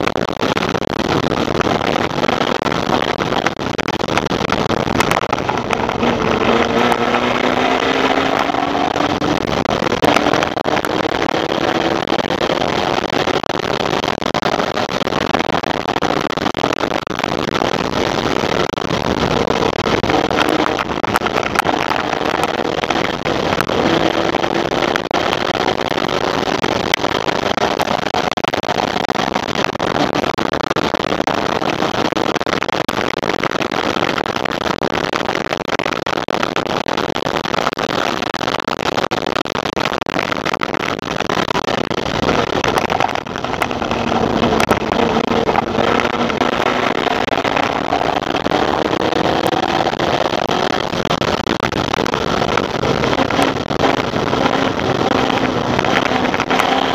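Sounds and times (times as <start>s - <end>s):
wind rush: 0.0s - 28.1s, 40.9s - 56.9s
race car engine revving through gears: 5.4s - 13.0s, 43.0s - 50.6s.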